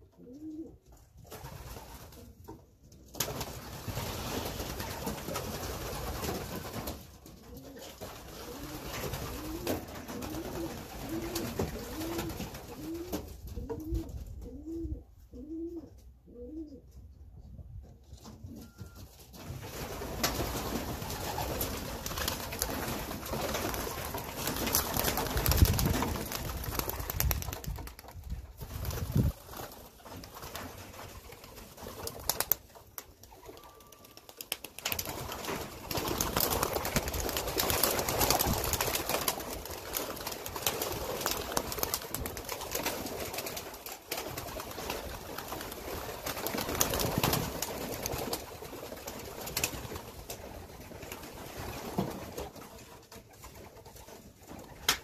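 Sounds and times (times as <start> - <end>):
pigeons cooing: 7.5 - 16.9.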